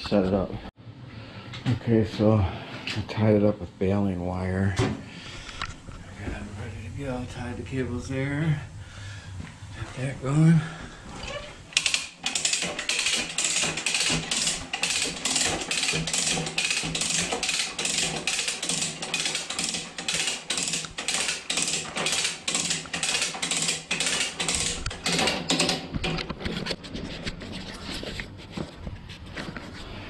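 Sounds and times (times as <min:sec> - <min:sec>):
hand winch ratchet clicking: 0:11.3 - 0:26.2.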